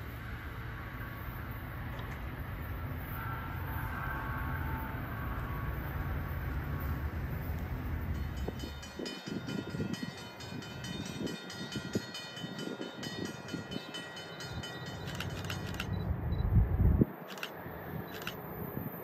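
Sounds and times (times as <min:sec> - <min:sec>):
distant train approaching: 0:00.0 - 0:19.0
crossing bell ringing: 0:02.9 - 0:16.1
wind gusting on microphone: 0:07.0 - 0:19.0.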